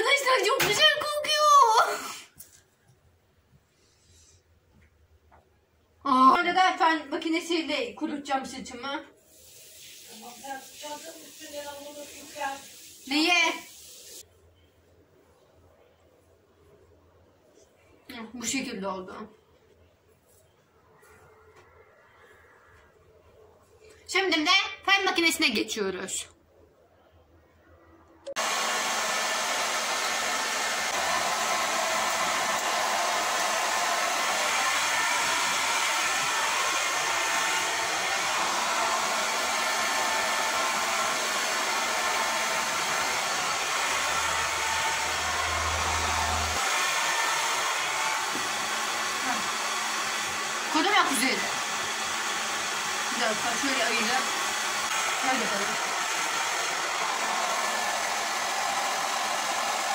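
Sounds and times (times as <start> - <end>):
hair dryer blowing: 1.5 - 2.3, 9.5 - 14.2, 28.3 - 59.9.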